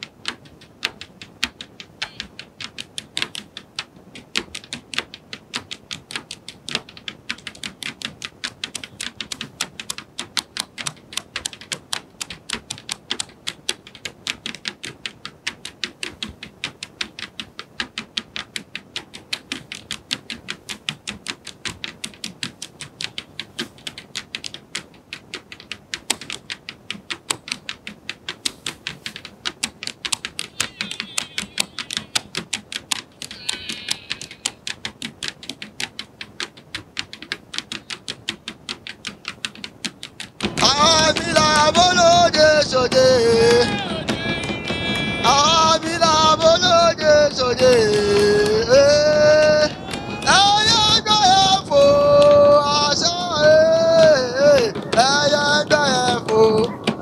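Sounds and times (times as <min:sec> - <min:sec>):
rhythmic sharp clicks: 0:00.0 - 0:57.0.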